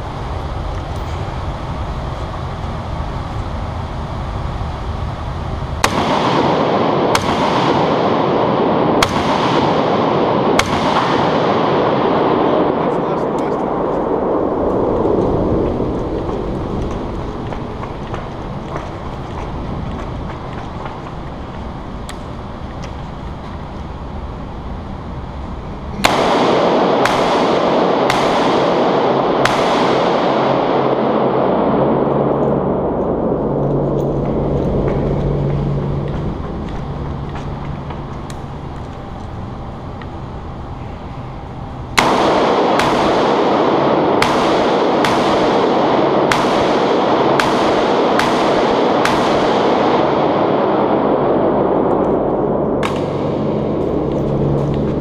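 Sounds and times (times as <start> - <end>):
rifle shots echoing indoors: 5.6 - 18.9, 26.0 - 36.5, 41.9 - 55.0.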